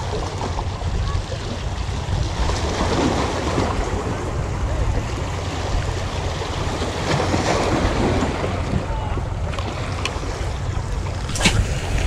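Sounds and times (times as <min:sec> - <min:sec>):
waves washing against rocks: 0:00.0 - 0:12.0
wind buffeting microphone: 0:00.0 - 0:12.0.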